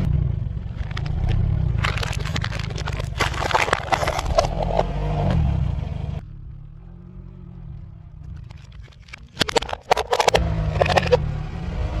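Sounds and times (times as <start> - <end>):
car engine running: 0.0 - 12.0
plastic cracking under tyre: 0.7 - 4.9.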